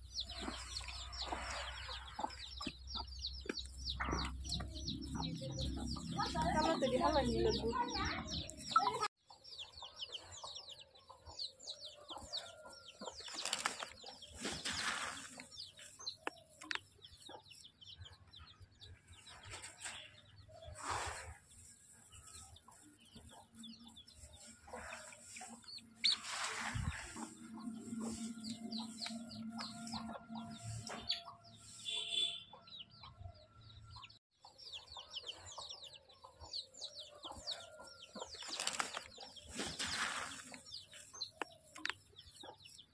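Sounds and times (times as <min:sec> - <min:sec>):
leaves rustling and crackling: 0:13.3 - 0:16.0, 0:24.2 - 0:27.5, 0:38.4 - 0:41.1
seed stirred by hand: 0:26.1 - 0:27.3, 0:38.5 - 0:40.7.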